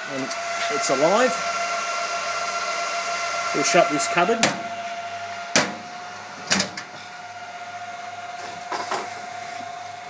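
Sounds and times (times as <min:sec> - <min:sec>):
control cabinet hum with whine: 0:00.0 - 0:10.0.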